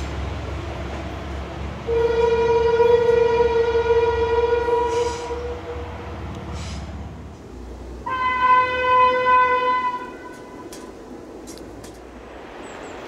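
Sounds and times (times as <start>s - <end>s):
train rumble: 0.0s - 13.0s
train horn: 1.8s - 6.2s, 8.0s - 10.7s.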